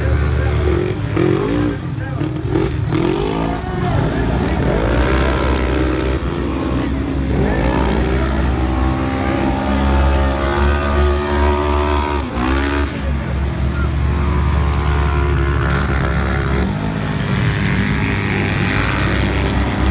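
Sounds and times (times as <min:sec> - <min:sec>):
race engines accelerating: 0:00.0 - 0:19.9.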